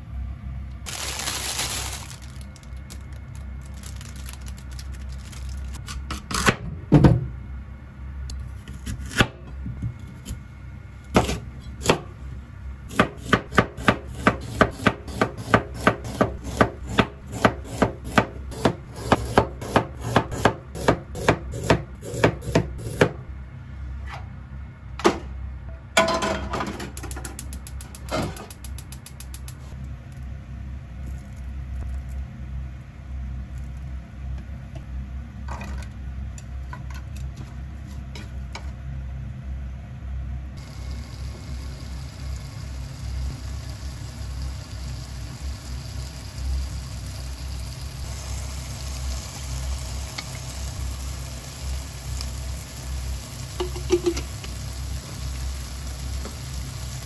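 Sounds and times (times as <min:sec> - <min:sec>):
knife chopping on cutting board: 0:12.9 - 0:23.2.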